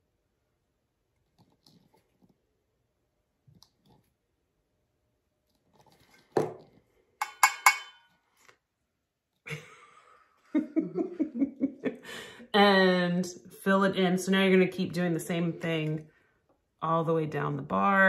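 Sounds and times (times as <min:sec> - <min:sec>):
knocks on metal tumbler: 0:07.2 - 0:08.0
sharp taps with metallic ring: 0:07.2 - 0:08.1.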